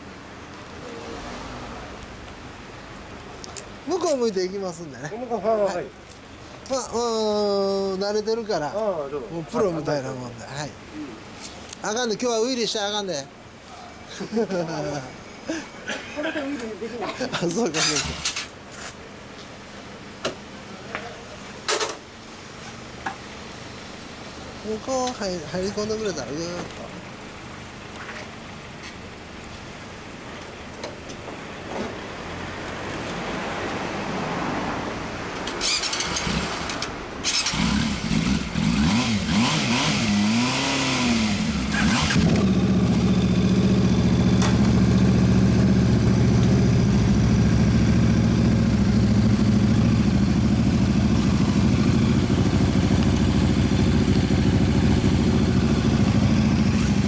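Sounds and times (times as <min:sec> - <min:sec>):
motorcycle engine revving and idling: 0:17.7 - 0:18.5, 0:35.6 - 0:57.0.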